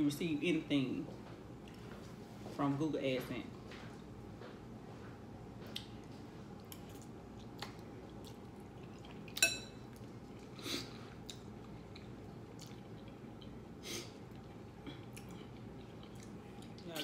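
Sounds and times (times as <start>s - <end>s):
wet chewing of noodles: 5.5s - 16.9s
metal fork clinking glass bowl: 9.4s - 9.8s.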